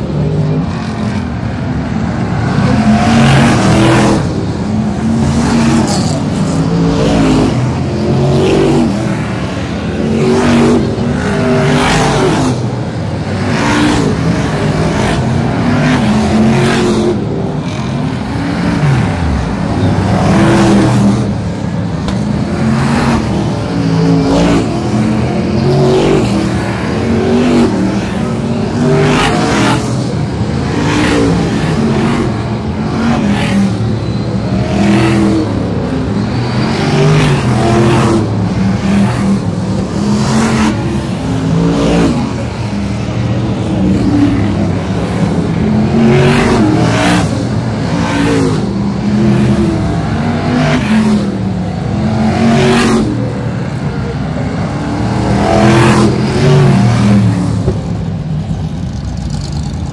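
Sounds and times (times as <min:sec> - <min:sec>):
racing car engines passing: 0:00.0 - 0:59.9.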